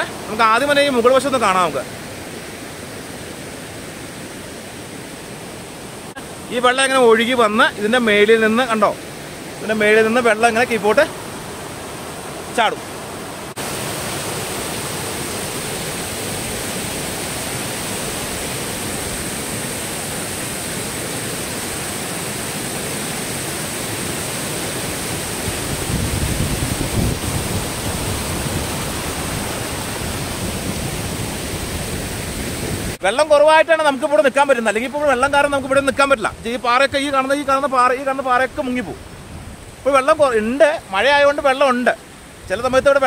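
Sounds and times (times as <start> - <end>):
waterfall rushing over rocks: 0.0 - 43.0.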